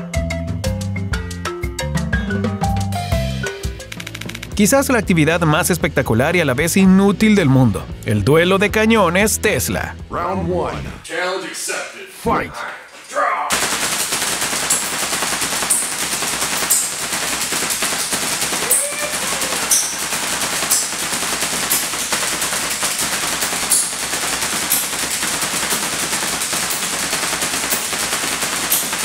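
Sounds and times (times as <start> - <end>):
sharp spark snaps: 13.5 - 29.0
tesla coil crackling buzz: 13.5 - 29.0.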